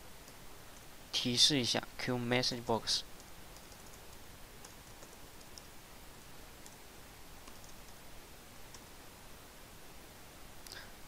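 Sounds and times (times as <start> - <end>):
steady low hiss: 0.0 - 11.0
keyboard typing clicks: 3.2 - 5.7, 7.4 - 8.0.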